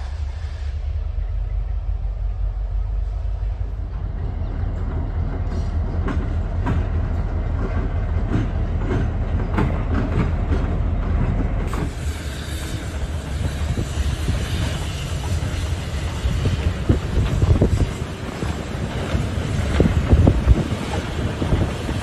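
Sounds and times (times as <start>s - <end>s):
diesel locomotive engine rumble: 0.0s - 22.0s
steady rushing noise: 11.2s - 22.0s.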